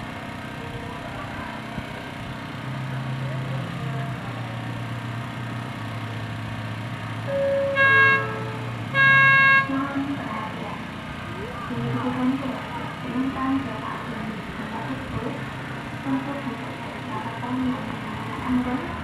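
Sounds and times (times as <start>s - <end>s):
steady low hum: 7.0s - 19.0s
train horn toots: 7.3s - 9.9s.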